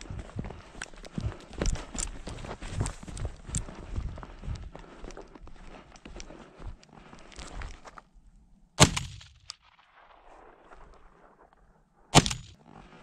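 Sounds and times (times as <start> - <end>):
shotgun shot: 8.8 - 10.8, 12.1 - 12.6.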